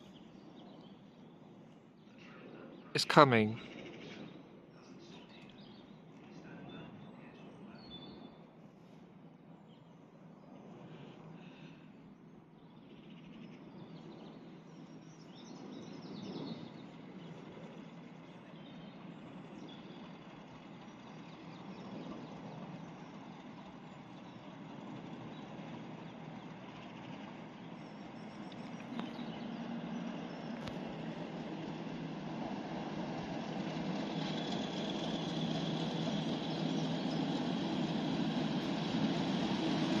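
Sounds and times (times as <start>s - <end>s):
diesel locomotive engine rumble: 16.8s - 40.0s.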